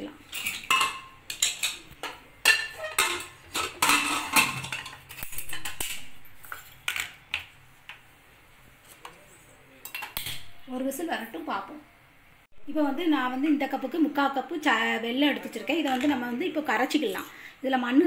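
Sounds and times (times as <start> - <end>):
metal lid clanks and clinks: 2.4 - 6.0.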